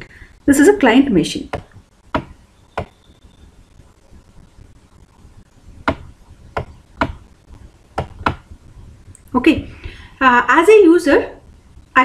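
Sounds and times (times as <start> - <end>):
stylus tapping tablet screen: 1.5 - 3.0, 5.8 - 8.6.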